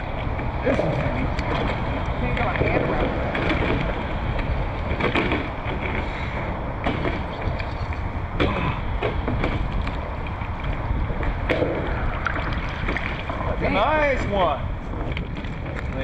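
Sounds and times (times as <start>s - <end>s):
wind buffeting microphone: 0.0s - 16.0s
sharp knocks: 6.8s - 7.3s
water lapping: 11.5s - 16.0s.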